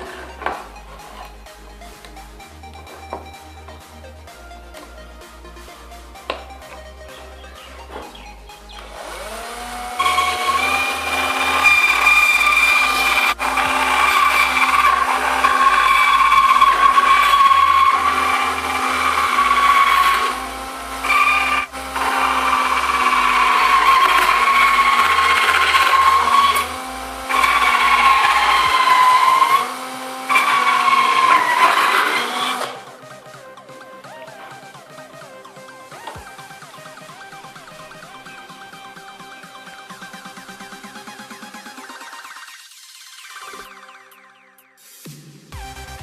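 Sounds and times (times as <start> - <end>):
saw blade cutting plastic: 0.0 - 2.2, 6.3 - 35.3
cordless drill motor whine: 6.3 - 33.4.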